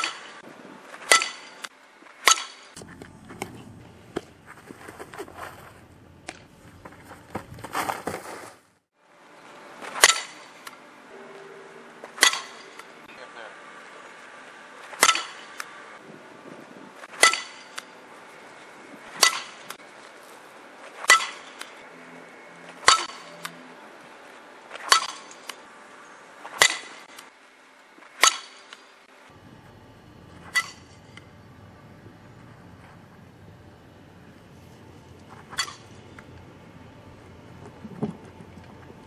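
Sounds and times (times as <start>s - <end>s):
bat hitting softball: 1.0s - 4.3s, 9.9s - 10.8s, 12.0s - 12.9s, 14.8s - 15.7s, 17.1s - 18.0s, 19.1s - 19.8s, 21.0s - 21.7s, 22.7s - 23.6s, 24.7s - 25.6s, 26.5s - 27.2s, 28.1s - 28.8s, 30.4s - 31.3s, 35.3s - 36.0s.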